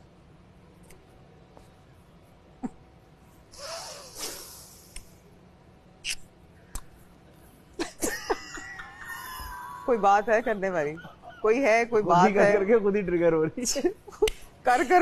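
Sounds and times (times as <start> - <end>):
blown kiss: 3.6 - 5.1.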